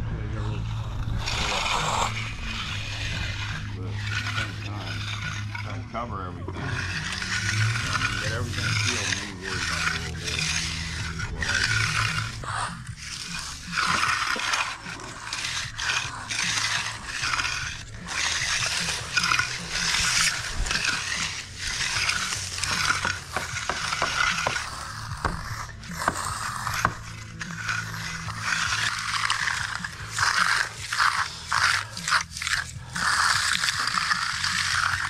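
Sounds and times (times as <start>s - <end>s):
steady low hum: 0.0s - 35.0s
trowels scraping concrete: 0.2s - 35.0s.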